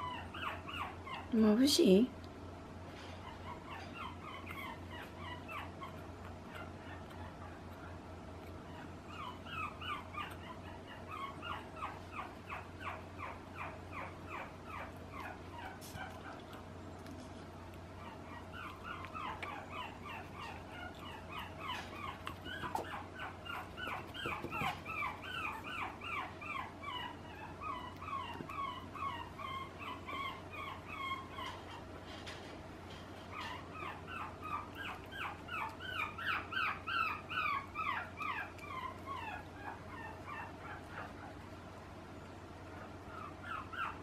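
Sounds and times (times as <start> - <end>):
puppy whimpering: 0.0 - 1.4, 3.1 - 32.4, 33.2 - 41.6, 42.7 - 44.0.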